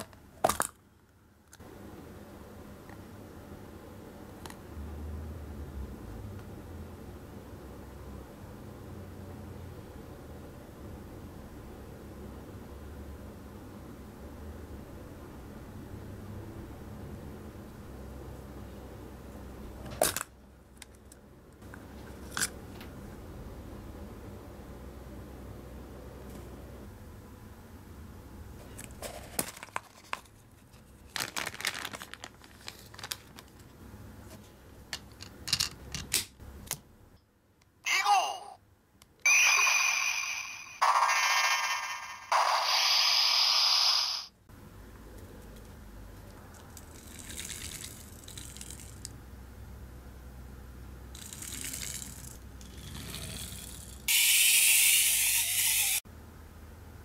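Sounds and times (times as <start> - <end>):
plastic bag crinkling: 29.4 - 33.7
toy car spring motor ratcheting: 51.1 - 56.0
toy car high whir: 51.2 - 56.0.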